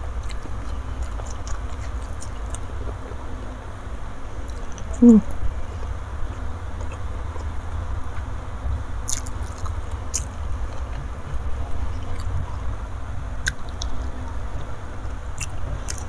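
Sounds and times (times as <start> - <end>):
low steady hum: 0.0 - 16.0
person chewing food: 0.2 - 2.9, 5.8 - 8.3, 9.1 - 12.4, 13.4 - 16.0.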